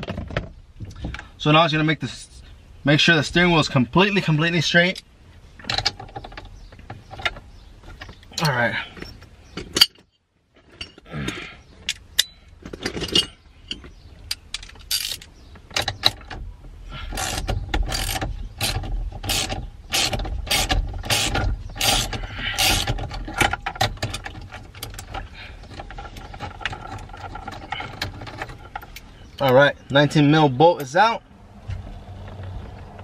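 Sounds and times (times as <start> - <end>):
ratchet wrench clicking: 17.2 - 23.0.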